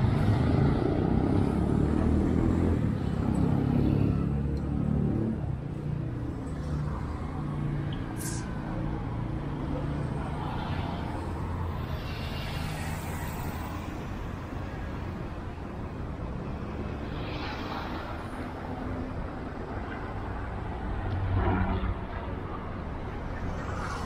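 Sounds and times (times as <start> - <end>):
loud vehicle passing: 0.0 - 14.4
running engines and passing cars: 0.0 - 24.0.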